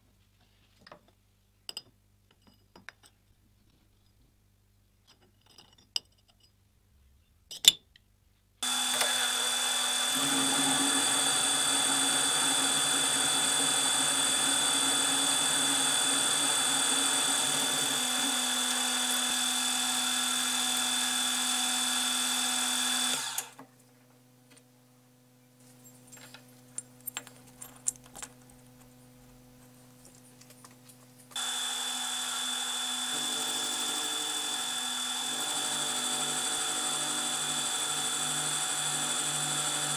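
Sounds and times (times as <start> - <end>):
milling machine whining: 8.6 - 23.6, 31.4 - 39.9.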